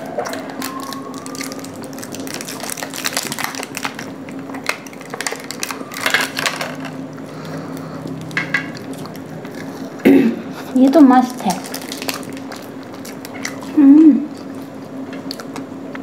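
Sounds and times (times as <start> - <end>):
steady low hum: 0.0 - 16.0
plastic cup crackling: 0.3 - 7.1, 11.1 - 14.6
person eating cake: 7.0 - 10.8, 11.6 - 16.0.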